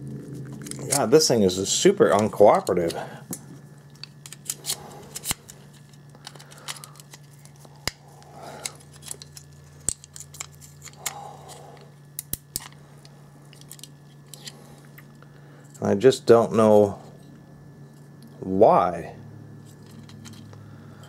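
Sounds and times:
tools scraping plastic housing: 0:19.7 - 0:20.5.

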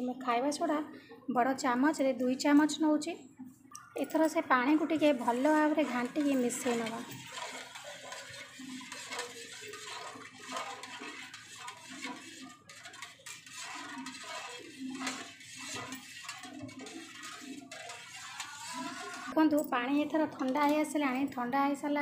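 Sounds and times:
spoon scraping metal bowl: 0:04.0 - 0:19.4.

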